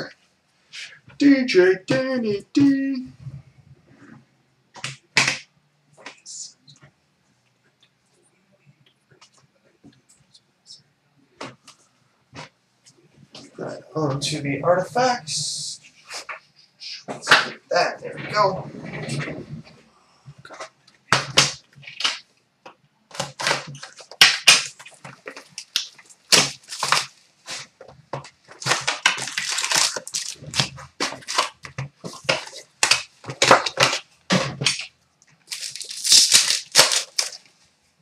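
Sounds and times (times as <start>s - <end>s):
wrappers crinkling and tearing: 23.1s - 27.7s, 28.5s - 37.5s.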